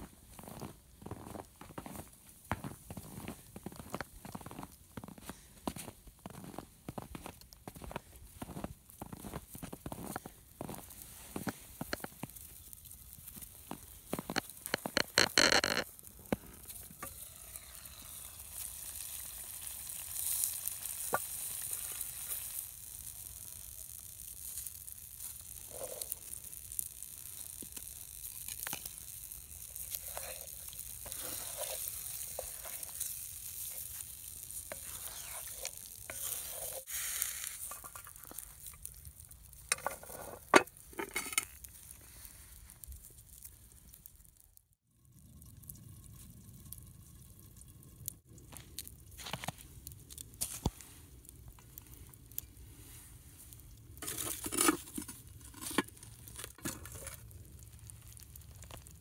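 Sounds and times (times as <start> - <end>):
chili simmering and sizzling: 0.0 - 59.0
metal lid clanking and scraping: 39.7 - 41.6, 54.0 - 56.0.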